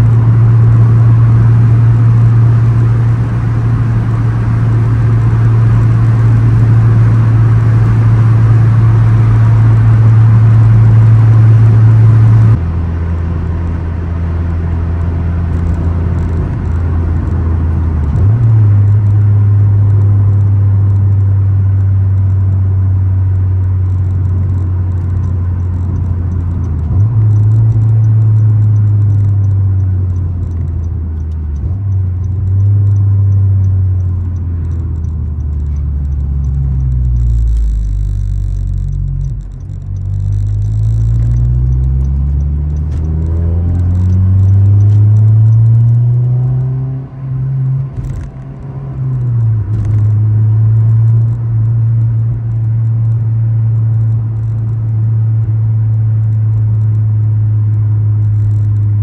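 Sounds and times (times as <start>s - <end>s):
car engine droning in cabin: 0.0s - 59.0s
engine revving on downshift: 23.9s - 52.4s.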